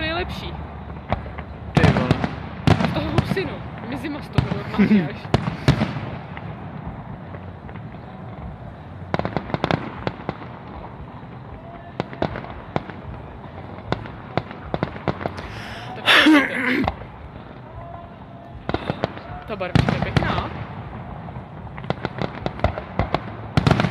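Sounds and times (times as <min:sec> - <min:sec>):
rushing firework burst: 0:00.0 - 0:17.6
fireworks cracking and banging: 0:00.0 - 0:23.9.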